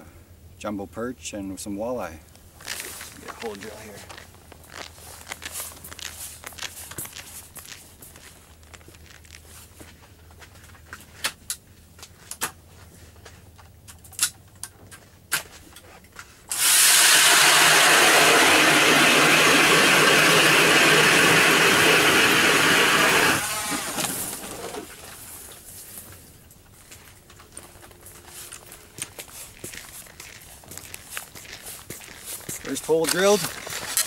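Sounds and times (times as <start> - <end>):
power ice auger drilling: 16.5 - 25.2, 32.6 - 34.0.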